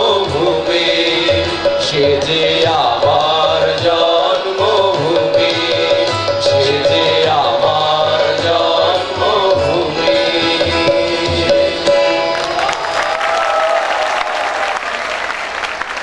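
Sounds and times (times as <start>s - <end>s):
harmonium: 0.0s - 12.7s
chorus singing: 0.0s - 13.2s
tabla: 0.0s - 13.2s
applause: 12.3s - 16.0s.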